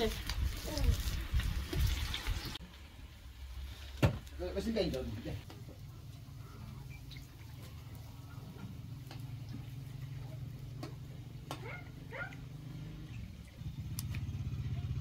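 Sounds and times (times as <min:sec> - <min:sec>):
patties frying: 0:00.0 - 0:11.2.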